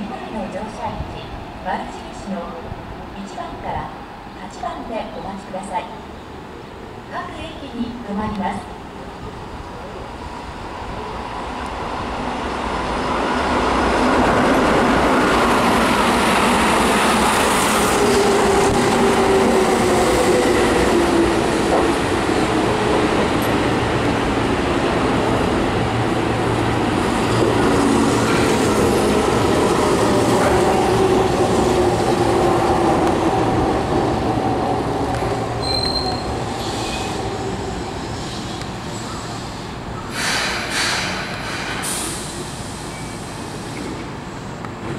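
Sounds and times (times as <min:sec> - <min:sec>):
train wheels rumbling on rails: 0:09.6 - 0:44.9.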